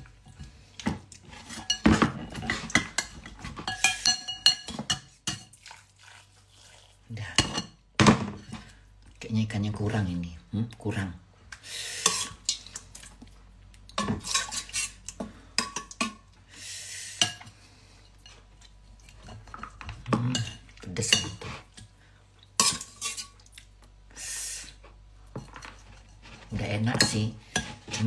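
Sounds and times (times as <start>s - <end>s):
metal spoon clinking on ceramic bowl: 3.7s - 5.5s.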